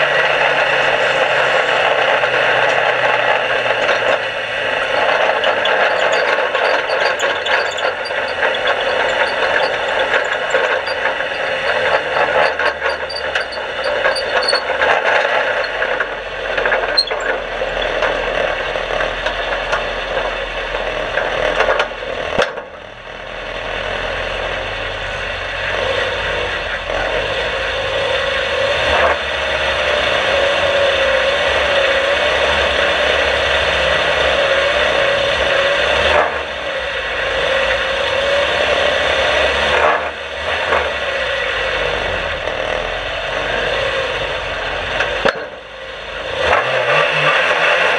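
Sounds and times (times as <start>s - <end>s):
race car engine running: 0.0s - 47.9s
car body rattling and clattering: 2.6s - 20.3s.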